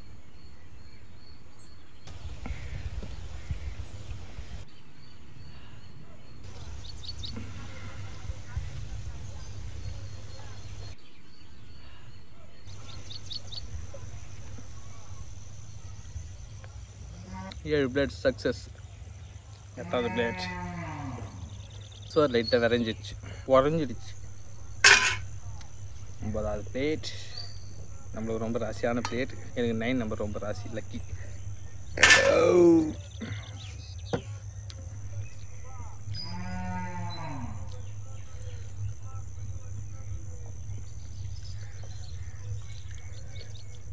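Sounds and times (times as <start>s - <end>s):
bird chirping: 0.0s - 17.7s, 20.6s - 43.9s
steady low rumble: 12.7s - 16.7s, 23.7s - 32.1s, 37.1s - 43.9s
cattle mooing: 19.8s - 21.4s, 36.2s - 37.8s.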